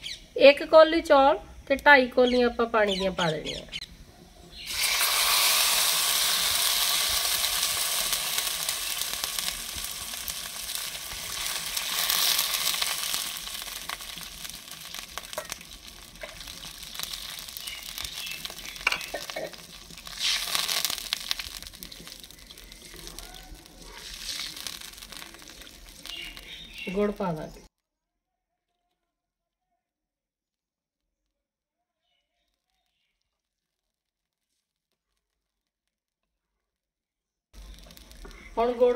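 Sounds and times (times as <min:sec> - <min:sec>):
hot fat sizzling: 0:00.0 - 0:27.7, 0:37.6 - 0:38.9
water pouring into hot fat: 0:04.6 - 0:26.9, 0:37.6 - 0:38.6.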